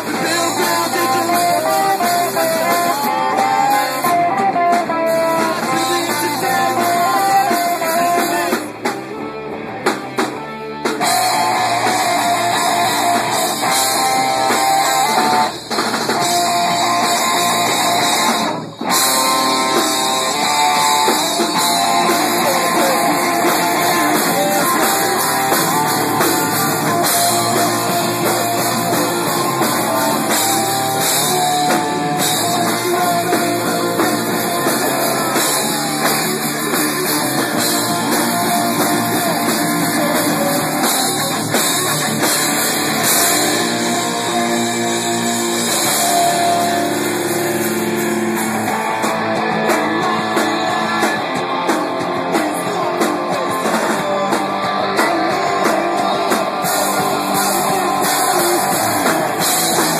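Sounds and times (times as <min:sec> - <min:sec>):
person singing: 0:00.0 - 0:09.5, 0:11.0 - 0:59.9
rock band playing live: 0:00.0 - 0:59.9.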